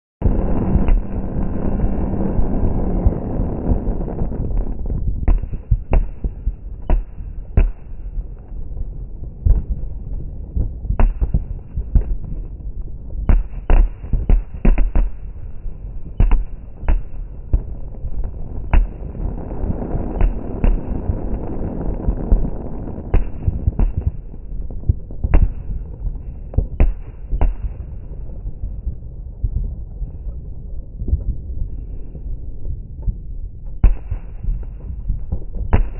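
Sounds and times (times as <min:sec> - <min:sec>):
fireworks bangs: 0:00.2 - 0:07.9, 0:16.2 - 0:26.0
distant fireworks rumble: 0:00.2 - 0:35.9.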